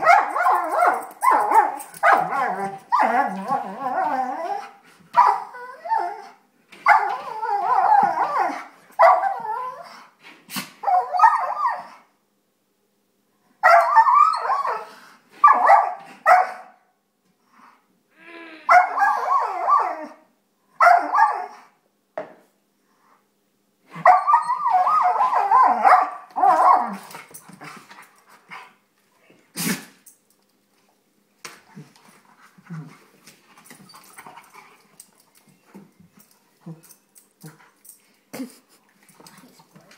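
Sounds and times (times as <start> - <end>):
dog barks and yips: 0.0 - 3.4, 5.2 - 6.1, 6.8 - 9.6, 10.8 - 12.0, 13.6 - 16.8, 18.7 - 20.2, 20.8 - 21.7, 24.0 - 27.1
dog howl-like play vocalizing: 2.2 - 4.7, 7.0 - 8.6.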